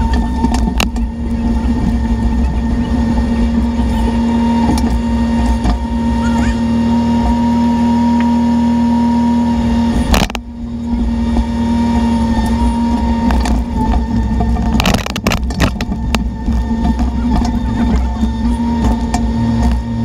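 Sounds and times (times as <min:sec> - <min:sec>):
mini excavator engine running: 0:00.0 - 0:20.0.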